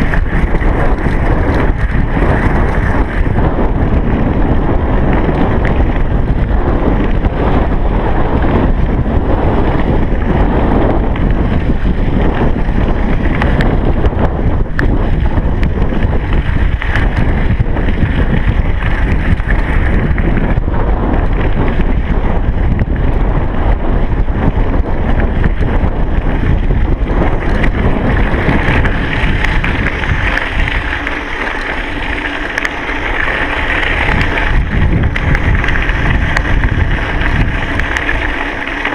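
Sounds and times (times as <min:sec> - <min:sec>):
wind buffeting microphone: 0:00.0 - 0:38.9.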